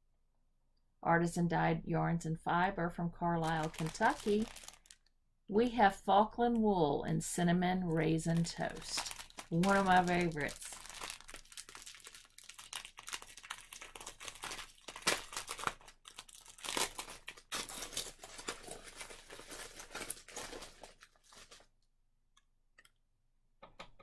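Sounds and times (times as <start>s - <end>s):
plastic bag crinkling: 3.4s - 5.1s, 7.9s - 21.7s.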